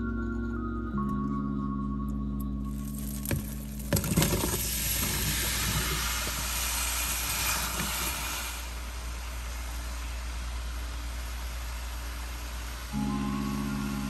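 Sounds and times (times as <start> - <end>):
low steady hum: 0.0 - 14.0
apple slices sizzling in butter: 2.9 - 8.7.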